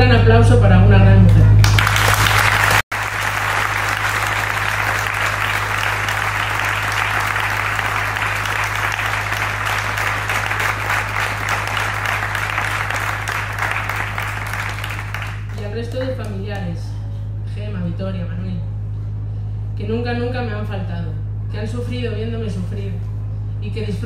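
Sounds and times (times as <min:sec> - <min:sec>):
audience applause: 0:01.6 - 0:16.0.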